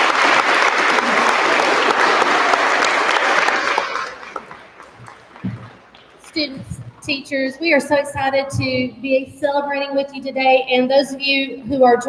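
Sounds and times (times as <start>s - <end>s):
people applauding: 0.0s - 6.5s.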